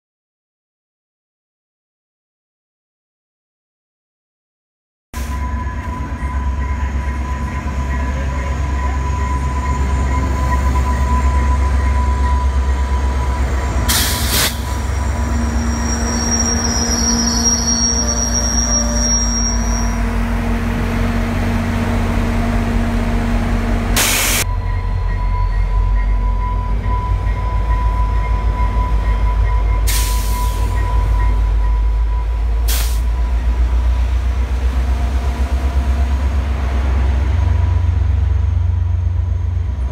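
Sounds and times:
locomotive engine rumbling past: 5.2 - 39.9
train cars rolling on rails: 5.2 - 39.9
wheel squeal: 14.4 - 20.1.

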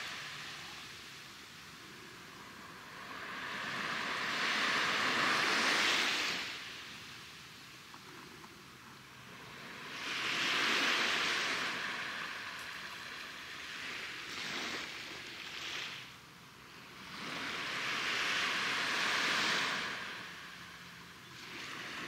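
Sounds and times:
waves washing ashore: 0.0 - 22.0.

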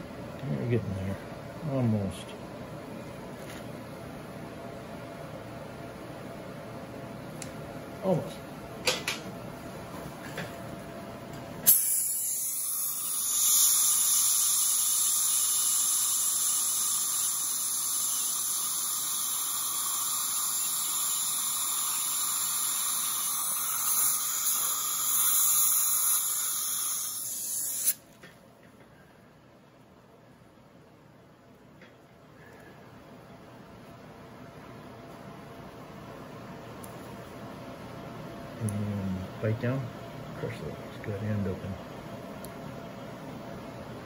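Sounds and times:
suction hissing: 11.6 - 28.0
dental drill whining: 11.7 - 28.0.

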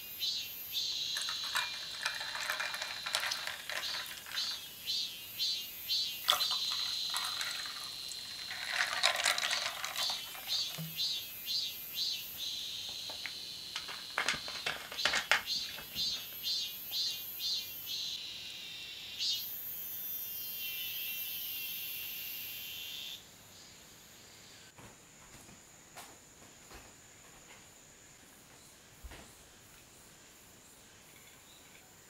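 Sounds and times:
insects singing: 0.0 - 23.2.

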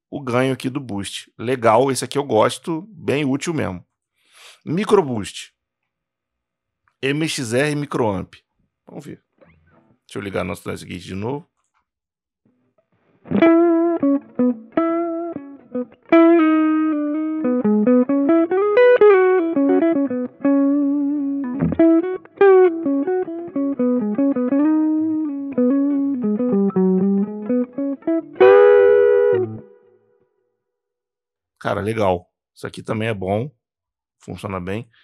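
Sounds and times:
electric guitar melody: 13.3 - 30.0
strummed guitar chord: 21.4 - 29.9.

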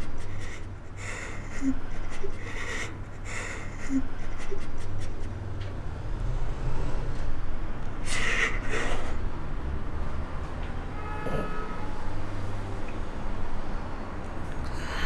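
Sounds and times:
woman crying: 0.0 - 5.3, 8.0 - 9.1
low steady hum: 0.0 - 15.0.

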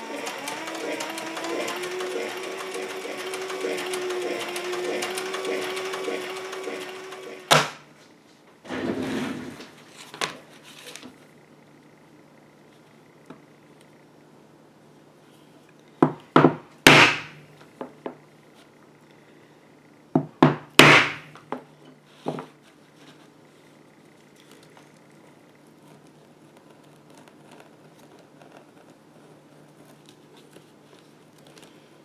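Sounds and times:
faint handling sounds: 9.7 - 11.4, 21.8 - 32.0.

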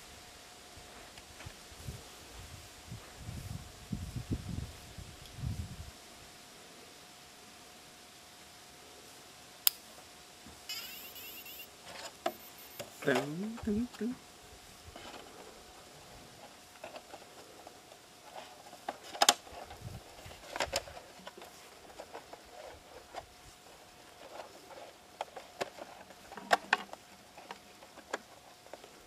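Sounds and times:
faint steady tone: 10.6 - 14.4.

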